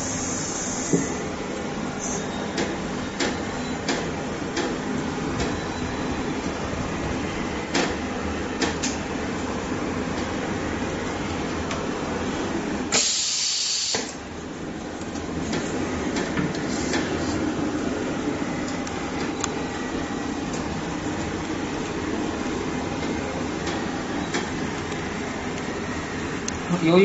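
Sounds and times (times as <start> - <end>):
compressed air hiss: 0.0 - 1.2, 12.9 - 14.2.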